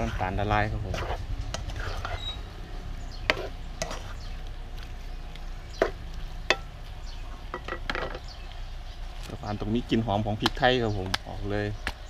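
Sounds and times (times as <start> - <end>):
spatula scraping and knocking wok: 0.0 - 8.3
low sizzle: 0.0 - 12.0.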